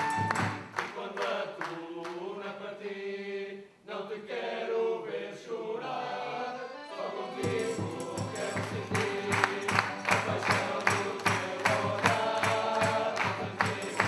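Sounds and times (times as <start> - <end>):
accordion: 0.0 - 0.8, 5.8 - 14.0
chorus singing: 0.0 - 14.0.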